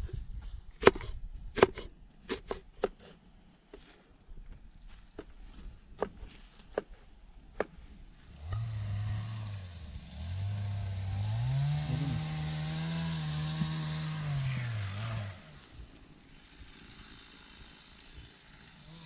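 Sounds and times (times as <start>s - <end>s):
engine running: 7.6s - 19.0s.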